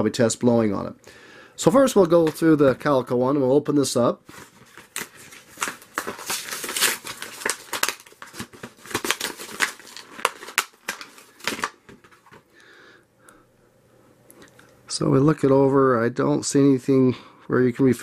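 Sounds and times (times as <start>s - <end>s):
plastic packaging crackling and snapping: 4.2s - 12.6s.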